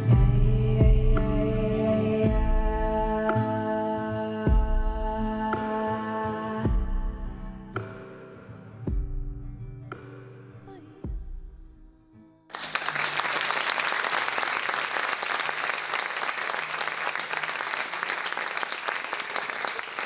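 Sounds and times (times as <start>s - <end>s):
audience applause: 12.5s - 20.0s.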